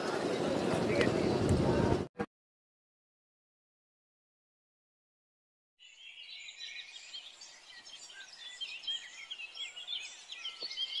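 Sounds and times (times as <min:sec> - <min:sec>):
small birds chirping: 0:05.8 - 0:11.0.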